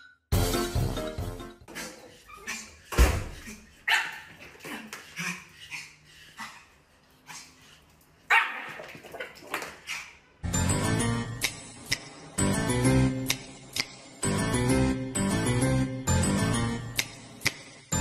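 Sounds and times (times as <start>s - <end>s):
small dog barking: 3.9s - 4.3s, 8.3s - 8.9s.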